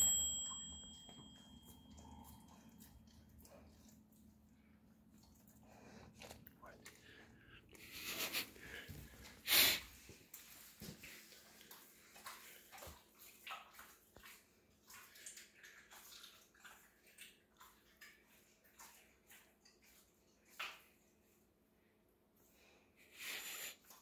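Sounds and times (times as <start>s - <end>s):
dog licking and chewing: 1.4s - 8.0s.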